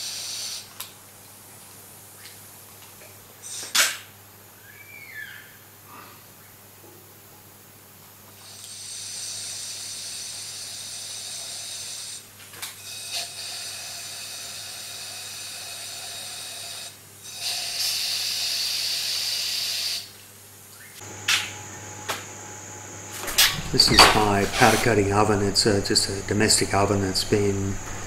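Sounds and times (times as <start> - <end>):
compressed air hissing from spray gun: 0.0 - 0.7, 8.4 - 12.3, 12.9 - 20.1
steady low hum: 20.7 - 28.0.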